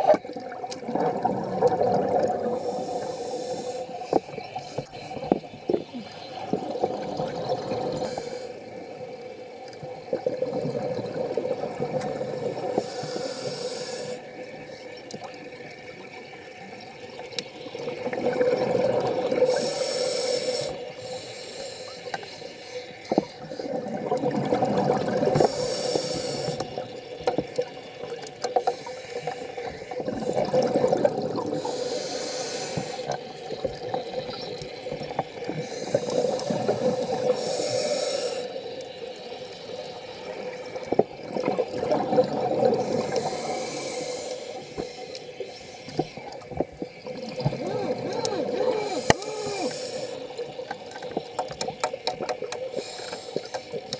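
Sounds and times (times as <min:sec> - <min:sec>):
diver exhaling bubbles: 0:00.0 - 0:03.6, 0:23.7 - 0:25.7, 0:29.6 - 0:32.0, 0:41.2 - 0:44.0, 0:47.1 - 0:50.5
regulator hiss: 0:02.5 - 0:06.1, 0:07.8 - 0:09.0, 0:12.0 - 0:15.2, 0:19.4 - 0:23.9, 0:25.4 - 0:26.8, 0:28.6 - 0:30.5, 0:31.5 - 0:33.6, 0:35.5 - 0:41.0, 0:42.8 - 0:47.0, 0:47.6 - 0:51.1, 0:52.6 - 0:53.9.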